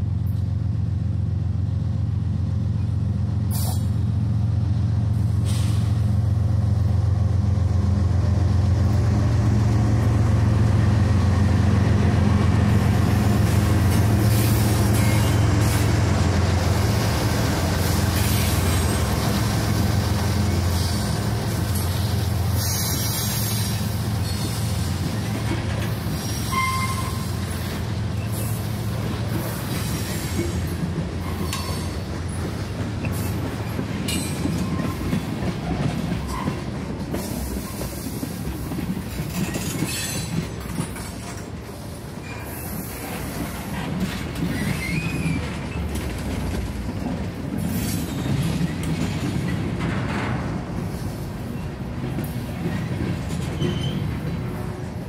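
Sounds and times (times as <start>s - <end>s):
rail noise: 0.0s - 55.0s
train engine drone: 0.0s - 55.0s
wheels squealing: 44.4s - 46.1s, 52.6s - 54.4s.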